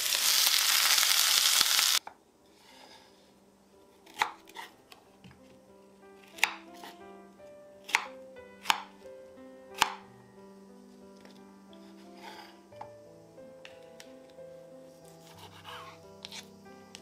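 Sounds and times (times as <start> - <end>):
food sizzling in a pan: 0.0 - 2.0
soft background music: 2.2 - 17.0
knife chopping on wooden board: 4.1 - 4.7, 6.3 - 7.0, 7.8 - 8.9, 9.8 - 10.0, 15.2 - 16.5.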